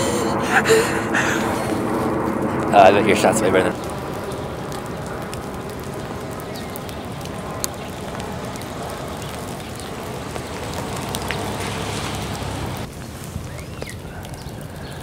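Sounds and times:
steady rain: 0:00.0 - 0:15.0
raindrop ticks: 0:01.6 - 0:15.0.

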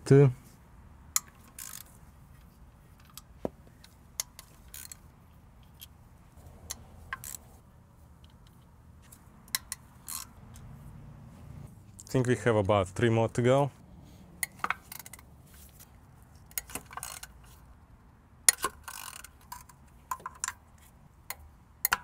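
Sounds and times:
wrench clicking on metal bolts: 0:01.1 - 0:02.0, 0:03.0 - 0:05.9, 0:06.6 - 0:07.5, 0:09.4 - 0:10.3, 0:14.4 - 0:15.2, 0:16.5 - 0:17.6, 0:18.5 - 0:20.6, 0:21.3 - 0:22.0.

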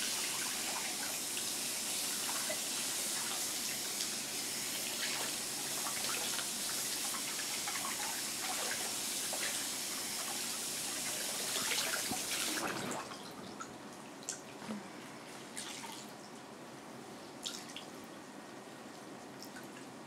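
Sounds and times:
tap running into washbasin: 0:04.8 - 0:13.7.

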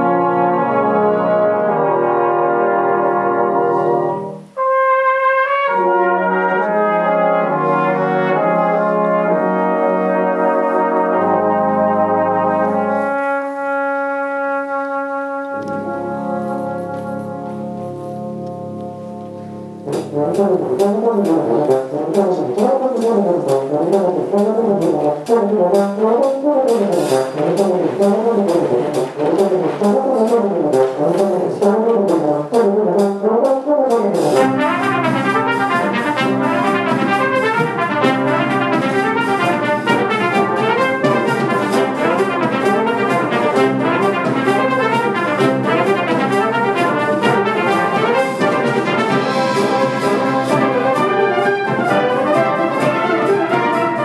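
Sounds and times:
brass band playing: 0:00.0 - 0:54.0
sharp percussion strokes: 0:19.0 - 0:54.0.

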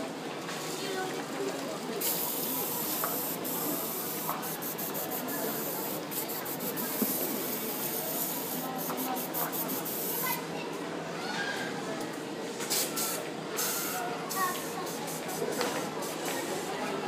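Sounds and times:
airbrush spraying hiss: 0:02.0 - 0:10.3.

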